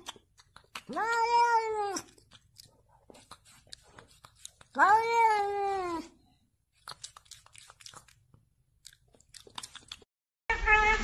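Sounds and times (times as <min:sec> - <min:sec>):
cat meowing: 0:00.9 - 0:02.2, 0:10.5 - 0:11.0
faint clicks and crunching: 0:06.7 - 0:10.1.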